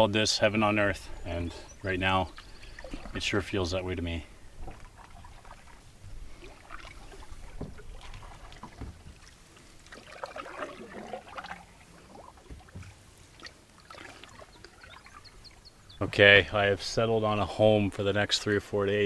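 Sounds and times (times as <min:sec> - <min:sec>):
paddle strokes in water: 0:01.4 - 0:16.1.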